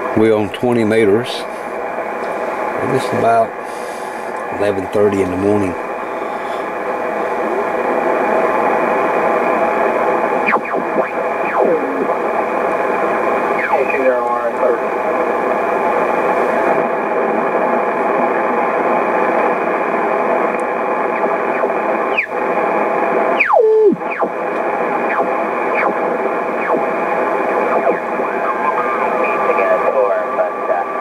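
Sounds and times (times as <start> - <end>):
radio band noise hiss: 0.0 - 31.0
radio falling whistles: 10.4 - 11.7, 22.0 - 22.4, 23.3 - 24.4.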